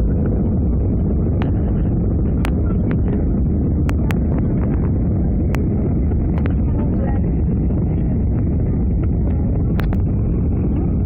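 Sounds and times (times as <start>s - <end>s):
muffled aircraft cabin rumble: 0.0s - 11.0s.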